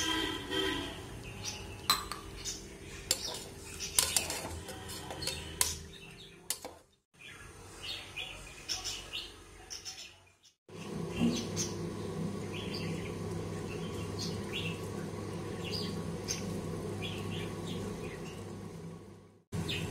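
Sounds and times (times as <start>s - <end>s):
ladle clinking and scraping in pot: 3.0s - 6.8s.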